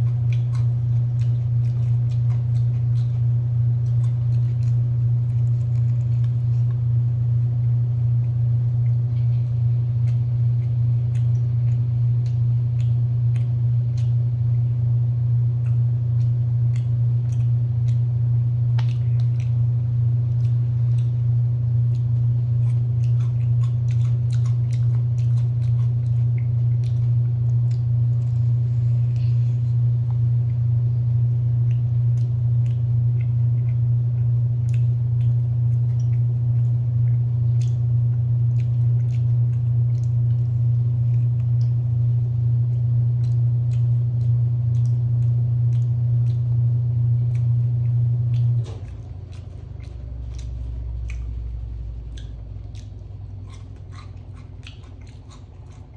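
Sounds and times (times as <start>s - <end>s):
crunchy chewing: 0.0s - 55.9s
low hum: 0.0s - 55.9s.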